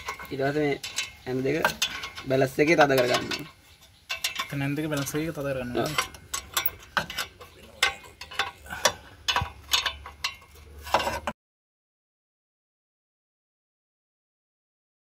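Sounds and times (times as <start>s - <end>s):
spanner clicking on nuts: 0.0s - 11.2s.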